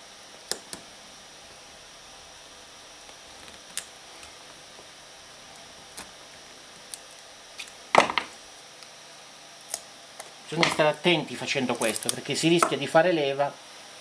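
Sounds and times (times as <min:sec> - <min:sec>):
crackle of snaps: 0:00.5 - 0:00.9, 0:03.0 - 0:04.9, 0:05.5 - 0:06.2, 0:06.8 - 0:09.0, 0:09.6 - 0:10.9, 0:11.7 - 0:12.8.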